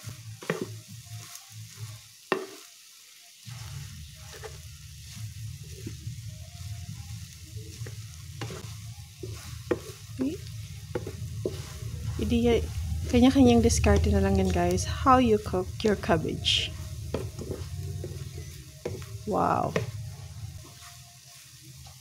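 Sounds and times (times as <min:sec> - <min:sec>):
wooden spatula scraping a pan: 0:00.0 - 0:02.7, 0:03.5 - 0:22.0
faint sizzle: 0:00.0 - 0:22.0
low hum: 0:03.5 - 0:20.6
spatula knocking against pan: 0:08.4 - 0:10.0, 0:10.9 - 0:11.7.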